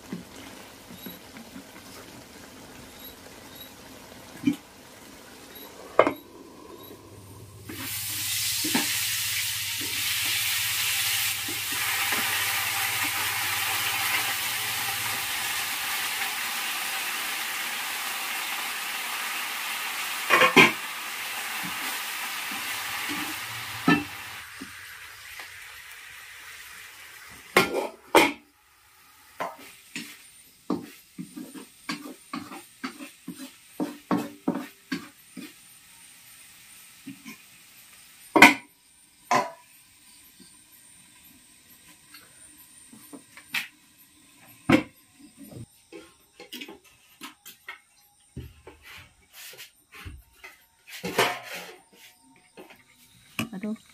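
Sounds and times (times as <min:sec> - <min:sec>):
vegetables sizzling in hot oil: 0:00.0 - 0:45.7
wooden spatula scraping a wok: 0:29.4 - 0:35.6, 0:50.8 - 0:52.2.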